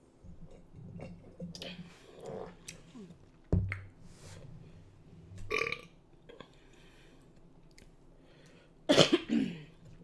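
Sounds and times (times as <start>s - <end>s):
woman burping: 5.5s - 5.9s.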